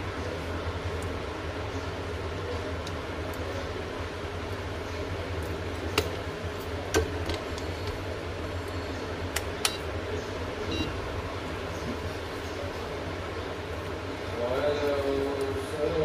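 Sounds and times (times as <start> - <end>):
high beep from meter: 10.7 - 11.0.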